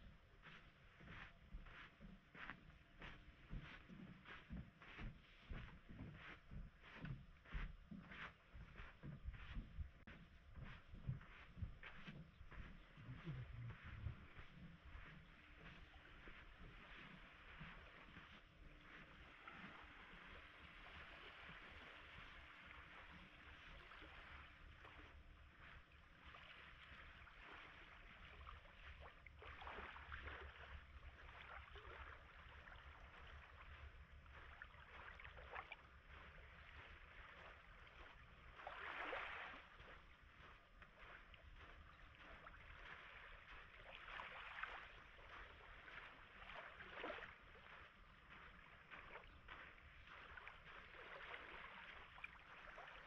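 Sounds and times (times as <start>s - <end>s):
small waves lapping: 0.0s - 53.0s.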